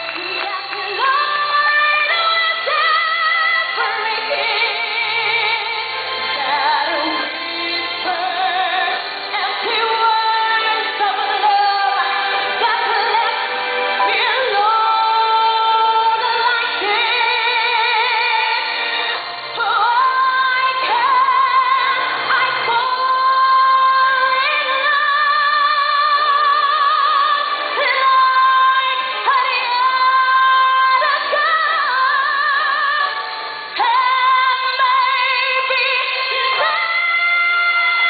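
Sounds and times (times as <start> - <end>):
backing music: 0.0 - 38.0
woman singing a ballad: 0.0 - 38.0.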